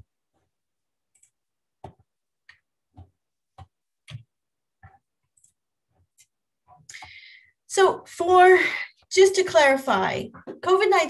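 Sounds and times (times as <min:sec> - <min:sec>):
computer mouse clicks: 0:01.1 - 0:01.4, 0:04.9 - 0:05.6.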